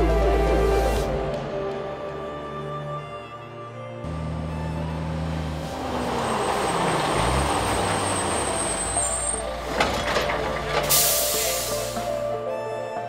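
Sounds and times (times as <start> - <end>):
truck tyre and engine noise: 3.9 - 12.9
high-pitched brake squeal: 5.8 - 9.5.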